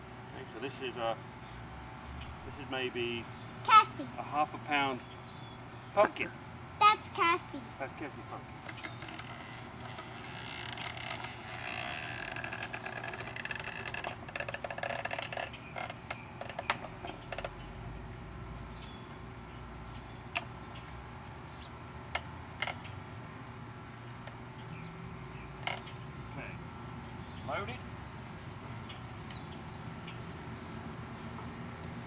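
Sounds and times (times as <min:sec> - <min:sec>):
wooden frame creaking and rattling: 0:08.6 - 0:17.8, 0:25.4 - 0:26.0
sharp clicks and knocks: 0:08.6 - 0:18.2.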